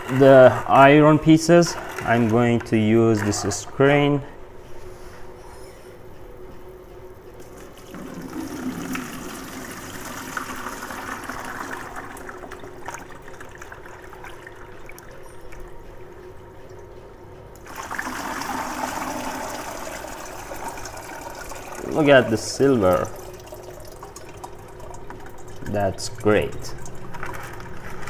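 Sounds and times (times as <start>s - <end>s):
liquid trickling: 7.4s - 17.0s, 17.6s - 28.0s
liquid poured through colander: 7.8s - 15.6s, 17.6s - 28.0s.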